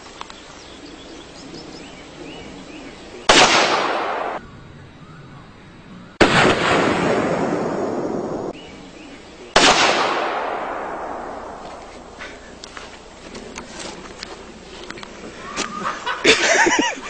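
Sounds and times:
pistol shots echoing: 0:03.3 - 0:04.4, 0:09.5 - 0:12.2.

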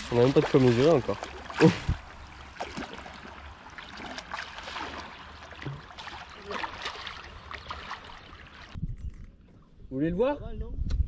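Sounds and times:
fish splashing at water surface: 0:00.0 - 0:08.8
steady wash of water: 0:00.0 - 0:08.8.

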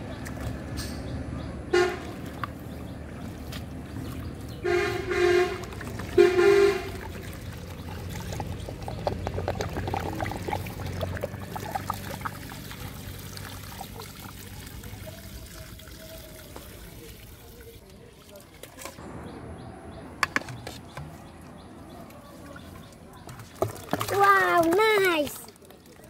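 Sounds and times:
water pouring and splashing: 0:01.8 - 0:19.0, 0:21.9 - 0:26.0
horn beeps: 0:04.6 - 0:05.6, 0:06.2 - 0:06.9.

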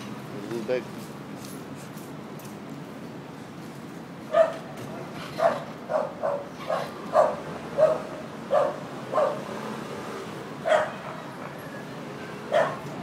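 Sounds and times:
dog barking: 0:04.3 - 0:04.7, 0:05.4 - 0:09.5, 0:10.6 - 0:11.3, 0:12.5 - 0:12.9.

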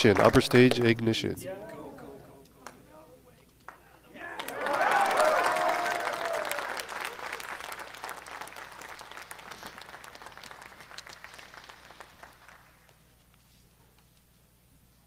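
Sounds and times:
crowd applause: 0:04.2 - 0:13.1.

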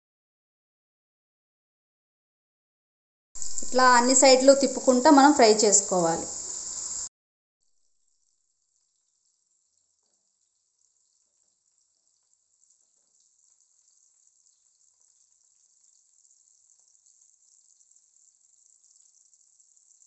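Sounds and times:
food sizzling in oil: 0:03.4 - 0:07.1, 0:10.4 - 0:20.0.

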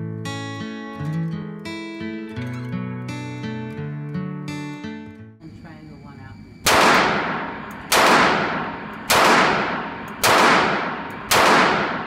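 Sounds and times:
handgun shots echoing indoors: 0:06.6 - 0:12.0.

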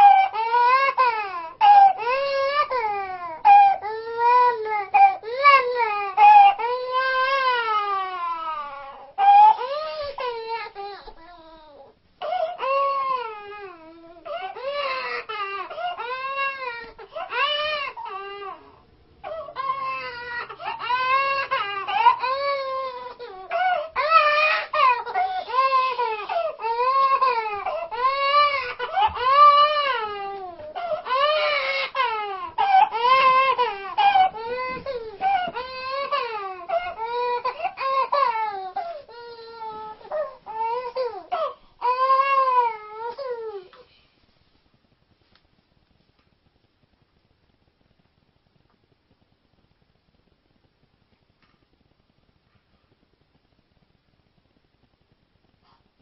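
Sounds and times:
toddler crying: 0:00.0 - 0:43.7.

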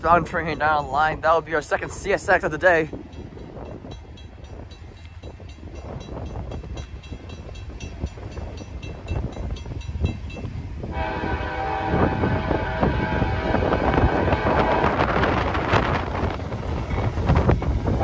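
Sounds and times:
freight train rumble: 0:00.0 - 0:18.0
crossing bell ringing: 0:03.1 - 0:10.7
locomotive horn blowing: 0:10.8 - 0:15.9.

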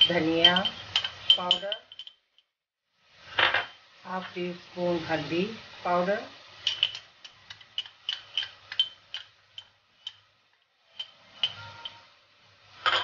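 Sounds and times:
metal spoon clinking on glass jar: 0:00.0 - 0:02.2, 0:06.7 - 0:07.0, 0:07.8 - 0:10.2, 0:10.9 - 0:12.1.

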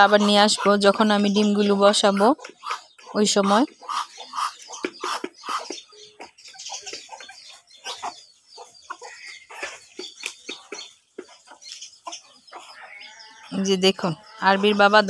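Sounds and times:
hen clucking: 0:00.0 - 0:15.0.

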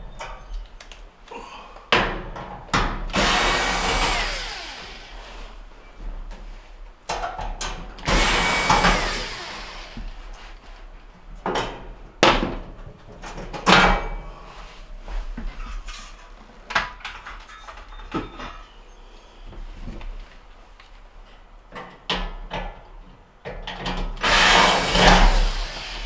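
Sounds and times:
cordless drill running: 0:03.1 - 0:05.4, 0:08.0 - 0:10.1, 0:24.2 - 0:26.0.

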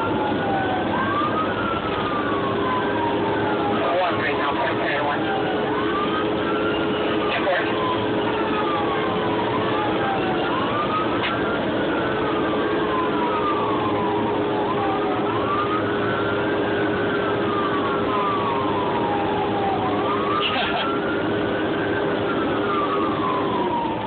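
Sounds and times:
engine drone: 0:00.0 - 0:24.0
fire engine siren wailing: 0:00.0 - 0:24.0
road noise: 0:00.0 - 0:24.0.

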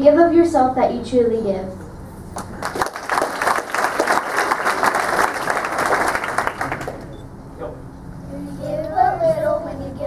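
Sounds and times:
audience applauding: 0:02.4 - 0:07.1.

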